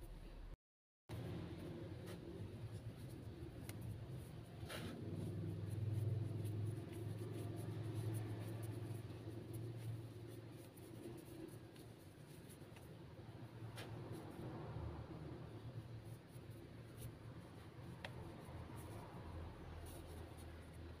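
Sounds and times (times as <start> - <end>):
hands rubbing dough: 1.1 - 21.0.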